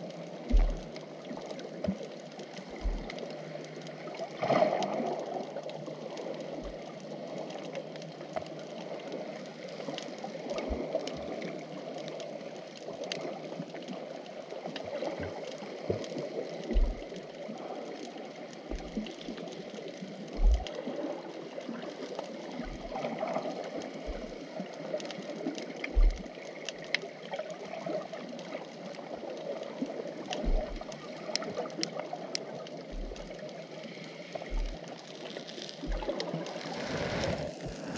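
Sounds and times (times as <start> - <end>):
underwater rush of water: 0.0 - 37.9
faint clicks: 0.4 - 37.9
short dull thumps: 0.5 - 0.8, 16.7 - 17.0, 20.4 - 20.7, 30.4 - 30.8.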